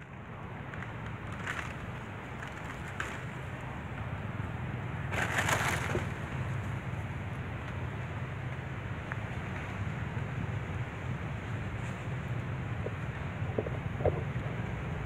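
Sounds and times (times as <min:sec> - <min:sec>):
scrapes and crackles of bark: 0:00.0 - 0:03.8, 0:05.0 - 0:06.8.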